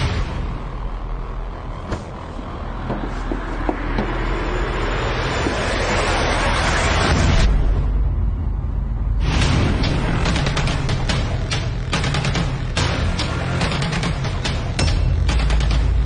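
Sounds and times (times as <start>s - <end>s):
low rumbling drone: 0.0s - 16.0s.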